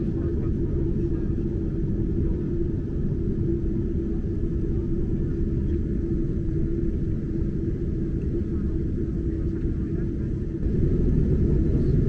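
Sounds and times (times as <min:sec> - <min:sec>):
low rumble of jet engines: 0:00.0 - 0:12.0
steady cabin hum: 0:09.3 - 0:12.0.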